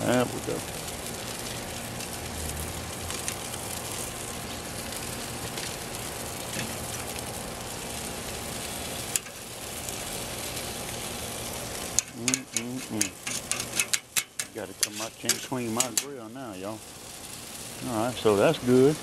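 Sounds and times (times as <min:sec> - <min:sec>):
food sizzling on a grill: 0:00.0 - 0:19.0
metal tongs clicking on grate: 0:11.9 - 0:16.1.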